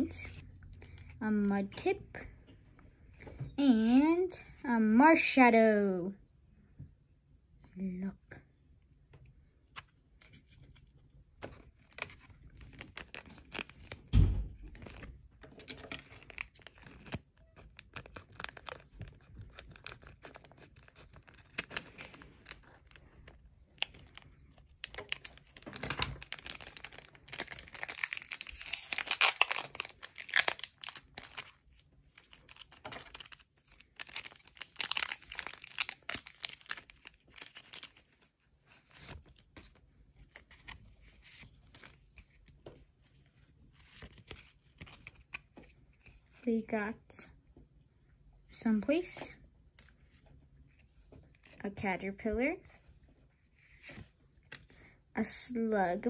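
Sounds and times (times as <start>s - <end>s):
foil wrapper crinkling: 11.8s - 38.3s.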